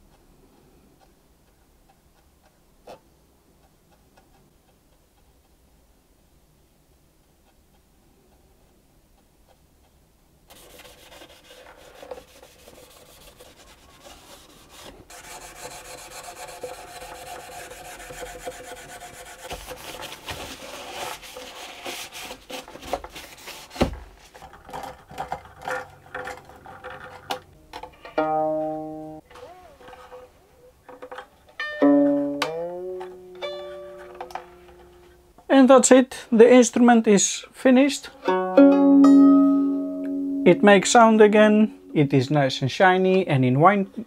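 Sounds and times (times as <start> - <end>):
rubbing on wooden violin body: 7.3 - 27.3
plucked string ringing: 28.0 - 35.1, 38.2 - 42.0.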